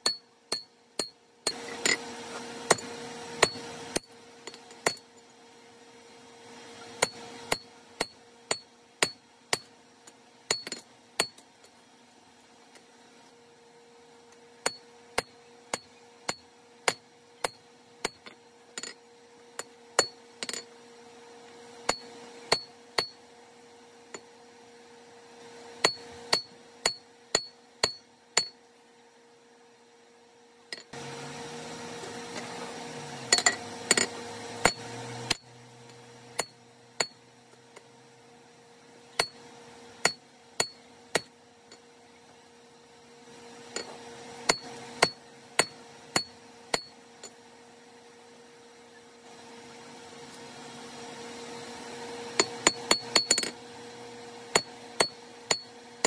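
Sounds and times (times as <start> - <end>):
hammer striking steel on anvil: 0.0 - 5.2, 7.0 - 11.7, 14.6 - 19.0, 19.6 - 20.7, 21.8 - 23.3, 25.8 - 28.7, 33.2 - 37.9, 39.2 - 41.9, 43.7 - 47.4, 52.3 - 53.6, 54.5 - 56.0.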